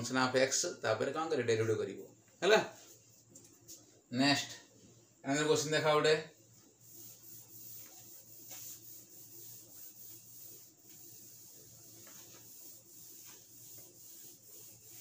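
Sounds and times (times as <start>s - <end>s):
cloth wiping whiteboard: 5.8s - 15.0s.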